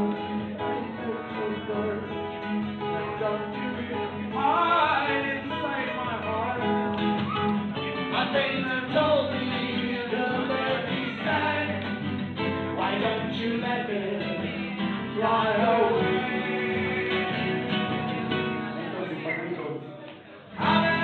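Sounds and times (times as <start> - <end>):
person singing: 0.0 - 18.5, 20.6 - 21.0
acoustic guitar music: 0.0 - 21.0.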